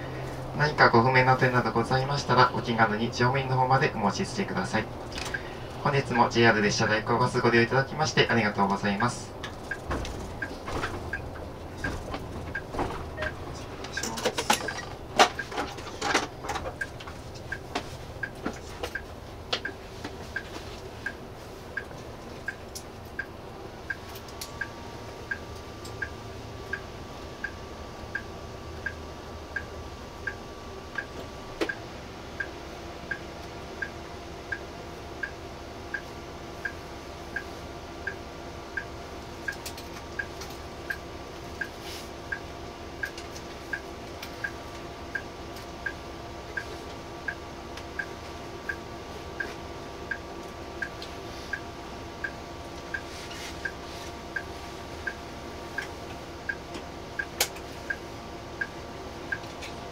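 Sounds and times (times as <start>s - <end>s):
bus engine idling: 0.0s - 59.9s
indicator relay ticking: 9.0s - 15.5s, 16.8s - 19.8s, 20.4s - 30.4s, 33.1s - 38.2s, 38.8s - 40.3s, 42.3s - 48.8s, 50.1s - 51.6s, 52.2s - 58.0s, 58.6s - 59.6s.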